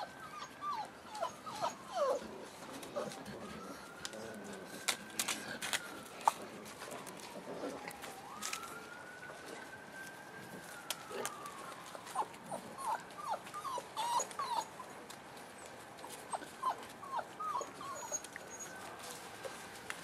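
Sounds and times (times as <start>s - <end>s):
puppies whimpering and squealing: 0.0s - 6.4s, 11.2s - 19.6s.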